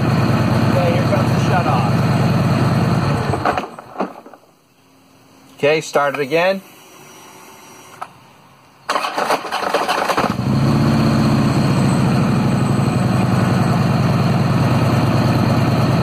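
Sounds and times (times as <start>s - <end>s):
motorcycle starter cranking: 8.9s - 10.4s.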